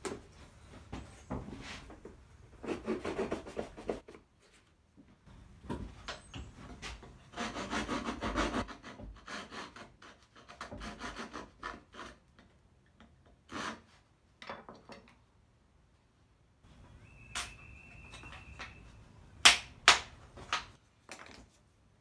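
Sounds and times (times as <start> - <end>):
hand file rasping over filler: 7.2 - 12.2.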